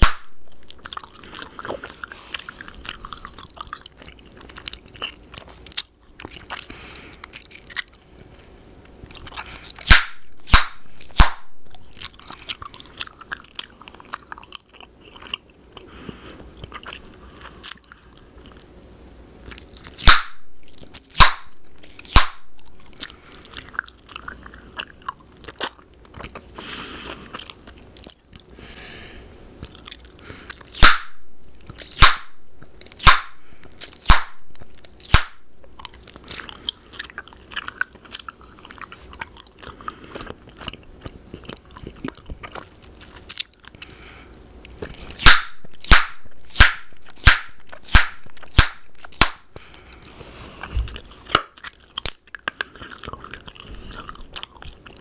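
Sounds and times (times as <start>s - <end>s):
sharp gum pops: 0.0s - 0.8s, 9.8s - 12.1s, 20.0s - 23.0s, 30.7s - 35.8s, 45.2s - 49.5s
wet gum chewing smacks: 0.0s - 18.7s, 19.4s - 28.8s, 29.6s - 55.0s.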